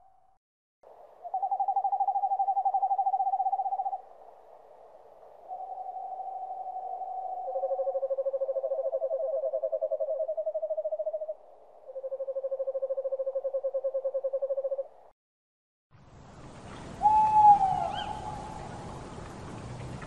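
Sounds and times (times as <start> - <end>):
owl hoot: 1.2 - 4.1, 5.4 - 14.9, 17.0 - 18.5
owl trilling: 1.3 - 4.0, 5.5 - 14.9, 17.0 - 18.4
faint hiss: 16.0 - 20.0.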